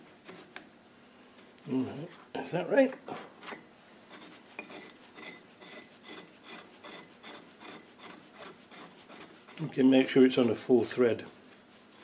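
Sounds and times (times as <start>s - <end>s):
metal rasping on metal: 1.9s - 9.8s.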